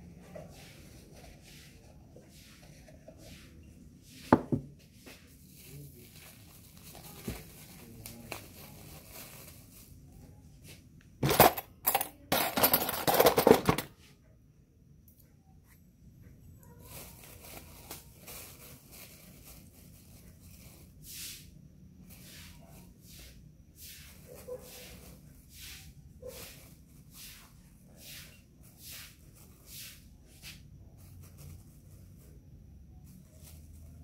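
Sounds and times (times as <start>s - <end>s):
loud rustling and crinkling: 5.0s - 10.4s, 16.8s - 21.0s.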